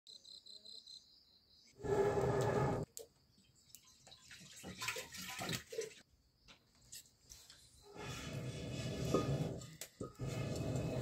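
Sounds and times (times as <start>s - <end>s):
water pouring into metal pot: 3.9s - 6.0s.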